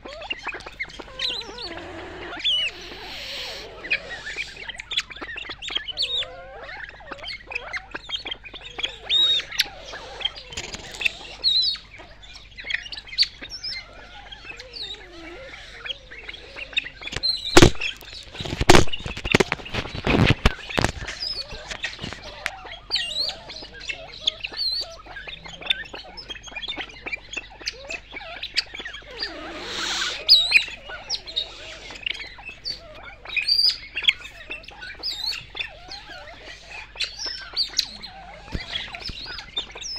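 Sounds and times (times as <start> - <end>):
pheasants chirping and squeaking: 0.0 - 39.9
sharp knocks: 17.6 - 17.9.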